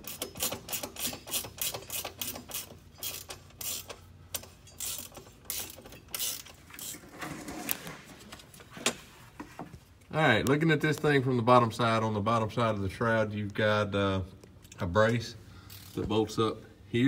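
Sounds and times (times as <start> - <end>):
ratchet wrench clicking: 0.0 - 7.0, 15.7 - 16.0.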